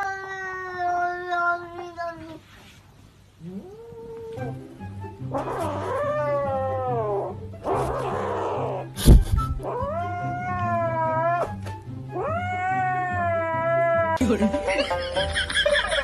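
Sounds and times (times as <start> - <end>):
background music: 4.3 - 16.0
kitten meowing: 5.3 - 11.6, 12.2 - 14.2
sharp thump: 9.0 - 9.6.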